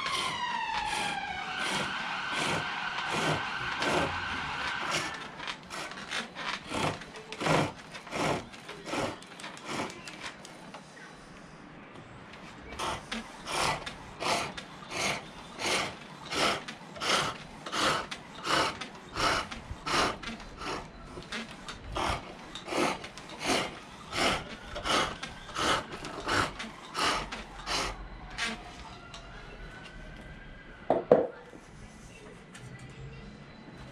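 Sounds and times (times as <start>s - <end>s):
lathe tool rasping on wood: 0.0s - 10.0s, 12.7s - 28.0s.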